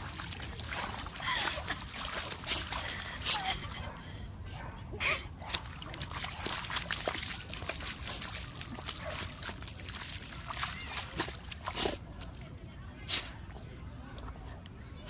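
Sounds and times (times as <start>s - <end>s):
mud sloshing and squelching: 0.0s - 3.7s, 5.4s - 12.5s.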